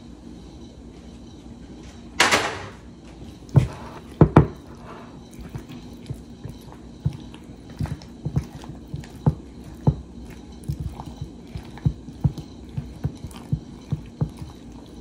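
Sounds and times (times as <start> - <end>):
wet squelching of noodles: 3.3 - 15.0.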